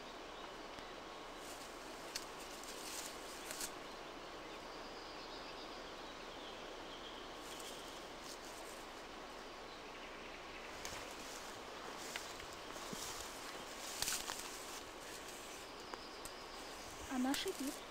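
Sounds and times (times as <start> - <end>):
background hiss: 0.0 - 17.9
stick rustling through grass: 1.4 - 3.8, 7.4 - 8.9, 10.7 - 17.9.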